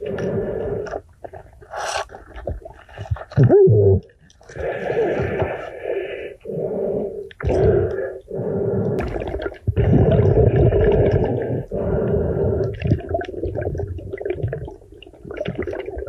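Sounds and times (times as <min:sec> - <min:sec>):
snorkel breathing: 0:00.0 - 0:02.2, 0:04.5 - 0:13.7
water noise: 0:00.0 - 0:16.0.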